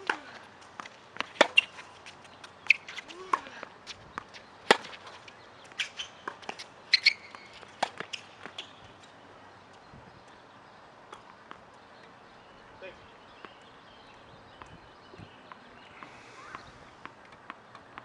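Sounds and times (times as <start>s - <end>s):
tennis ball hitting racquet: 0.0s - 9.0s
sneakers squeaking: 0.0s - 18.0s.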